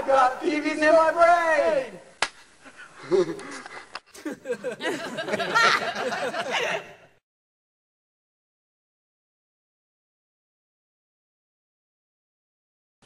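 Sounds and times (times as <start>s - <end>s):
men laughing and giggling: 2.6s - 7.2s.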